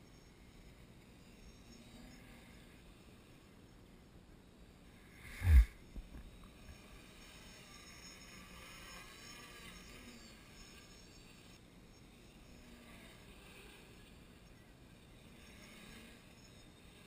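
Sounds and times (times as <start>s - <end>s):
air rush on microphone: 5.2s - 6.2s
quadcopter propellers whining: 5.2s - 11.0s.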